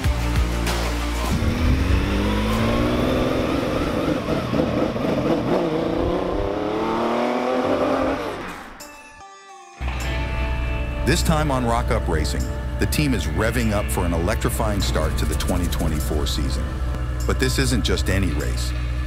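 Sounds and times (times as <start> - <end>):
car engine accelerating: 1.2 - 8.8, 14.4 - 19.0.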